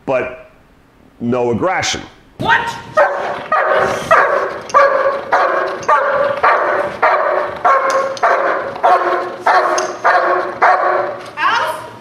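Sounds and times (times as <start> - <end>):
dog barking: 3.0 - 11.2.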